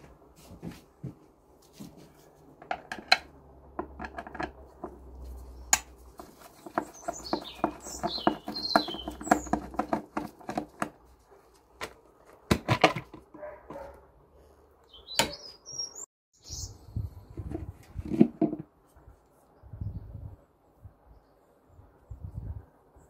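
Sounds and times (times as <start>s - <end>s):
bird chirping: 6.4s - 9.9s, 14.8s - 17.1s.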